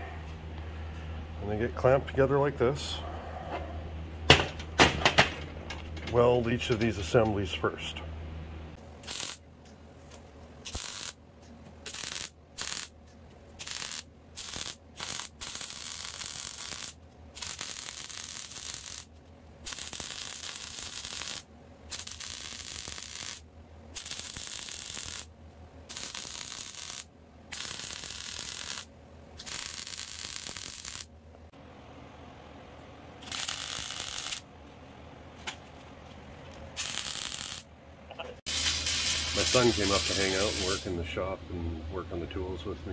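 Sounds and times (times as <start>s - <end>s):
welding arc crackling: 9.0s - 9.4s, 10.6s - 11.2s, 11.8s - 13.0s, 13.6s - 25.3s, 25.9s - 31.1s, 33.2s - 34.4s, 36.8s - 37.7s, 38.5s - 40.9s.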